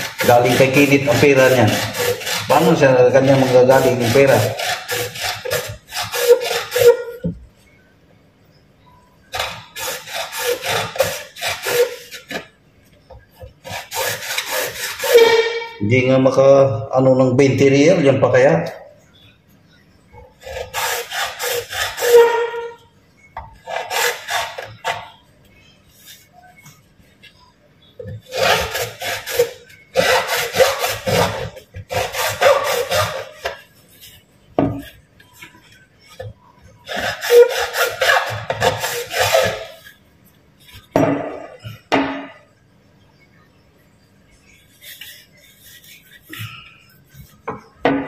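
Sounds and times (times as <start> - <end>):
hand tool rasping on plastic pipe: 0.0 - 7.3, 9.3 - 15.7, 20.4 - 22.8, 23.5 - 25.2, 28.0 - 40.0, 44.5 - 47.5.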